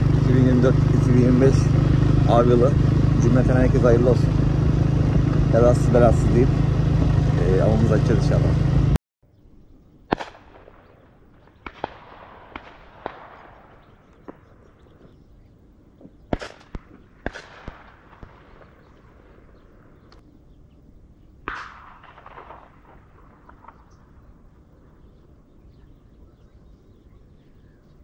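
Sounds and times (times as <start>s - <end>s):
distant shotgun shots echoing: 10.1s - 15.2s, 16.0s - 20.1s, 21.4s - 25.2s.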